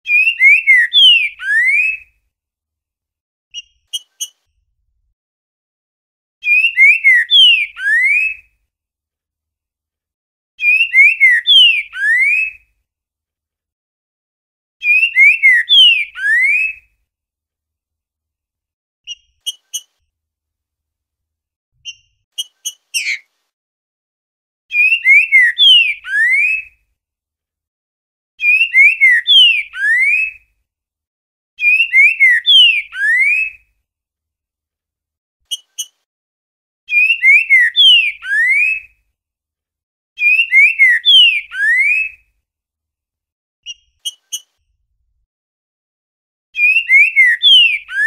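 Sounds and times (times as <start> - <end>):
bird singing whistled phrases: 0.1 - 2.1, 6.4 - 8.4, 10.6 - 12.6, 14.8 - 16.9, 24.7 - 26.8, 28.4 - 30.4, 31.6 - 33.6, 36.9 - 38.9, 40.2 - 42.2, 46.6 - 48.0.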